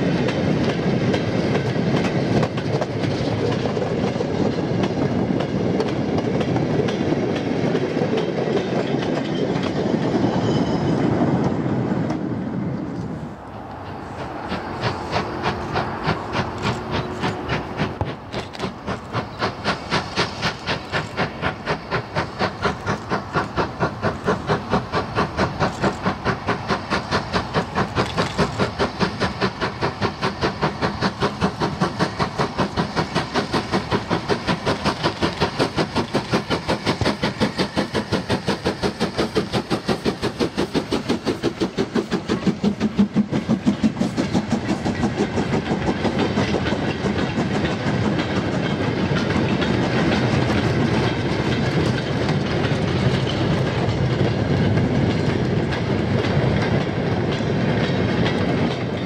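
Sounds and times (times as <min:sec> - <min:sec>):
steam locomotive exhaust beating: 0:00.0 - 0:59.0
wheels clattering over rail joints: 0:13.0 - 0:59.0.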